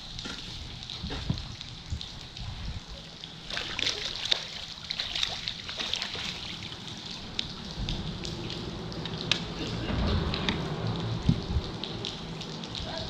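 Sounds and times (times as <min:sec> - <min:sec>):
rain pattering on water: 0:00.0 - 0:13.0
fish splashing at water surface: 0:03.4 - 0:07.7.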